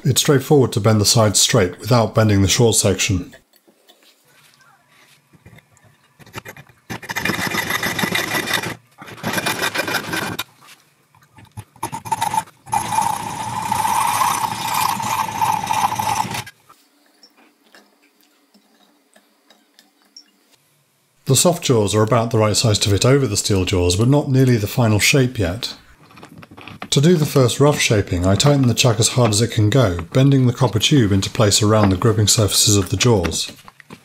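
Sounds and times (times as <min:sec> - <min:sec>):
hacksaw cutting pipe: 0:06.2 - 0:10.5, 0:11.4 - 0:16.6.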